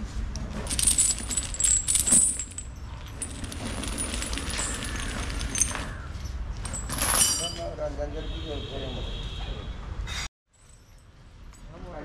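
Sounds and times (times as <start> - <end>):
metal jangling and clinking: 0.6 - 7.7.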